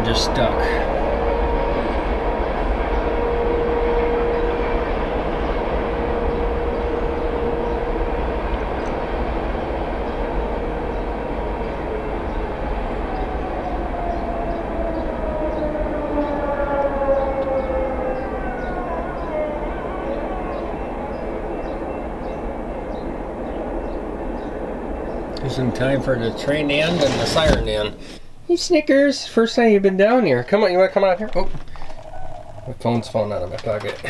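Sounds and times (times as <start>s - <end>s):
fire siren steady tone: 0.0s - 26.6s
passing train rumble: 0.0s - 34.0s.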